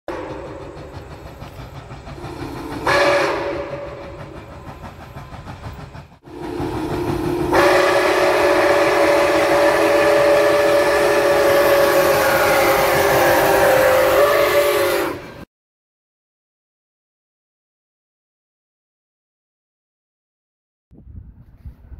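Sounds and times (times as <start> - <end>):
steam locomotive whistle: 0.1 - 1.2, 2.2 - 4.8, 6.2 - 15.5.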